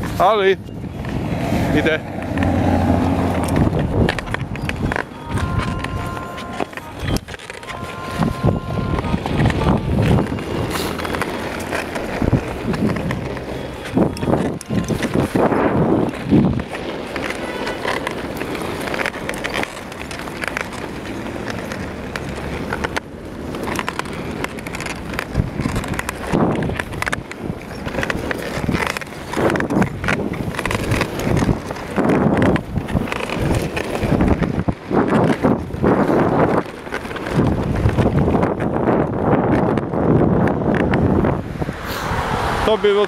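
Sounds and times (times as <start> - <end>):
wheels rolling on asphalt: 0.0 - 43.0
wind buffeting microphone: 0.0 - 43.0.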